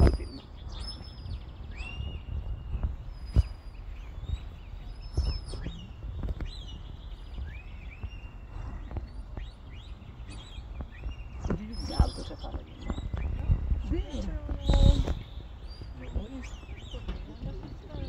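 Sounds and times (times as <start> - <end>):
short high whistled calls: 0.0 - 6.0.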